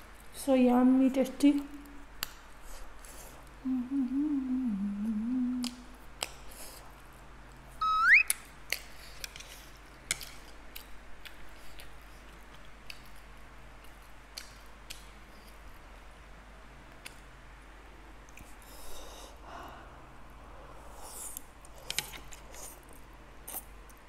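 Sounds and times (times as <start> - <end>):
woman humming while eating: 3.6 - 5.9
short rising squeak: 7.8 - 8.3.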